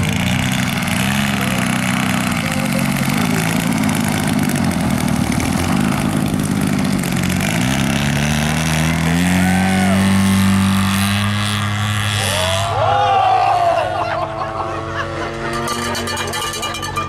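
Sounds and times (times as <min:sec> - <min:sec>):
model plane motor and propeller: 0:00.0 - 0:12.2.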